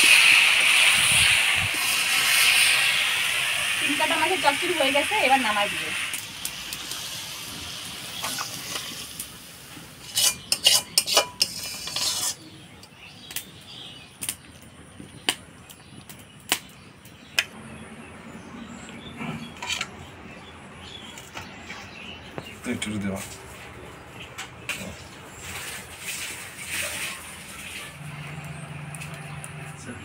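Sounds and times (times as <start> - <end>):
faint sizzle: 0.0 - 16.8, 24.7 - 30.0
metal utensil scraping a pan: 8.2 - 9.0, 10.0 - 12.7, 19.5 - 20.0, 25.4 - 28.0.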